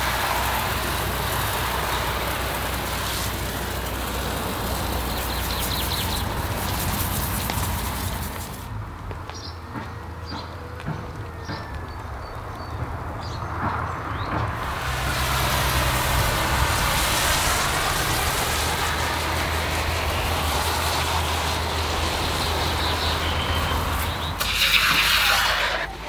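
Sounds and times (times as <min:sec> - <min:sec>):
sprayer hiss: 0:00.0 - 0:08.7, 0:14.6 - 0:26.0.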